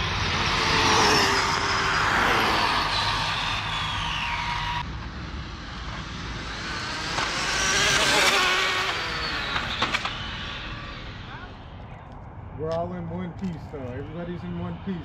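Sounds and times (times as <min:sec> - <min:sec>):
electric rc car motor whine: 0:00.0 - 0:11.8.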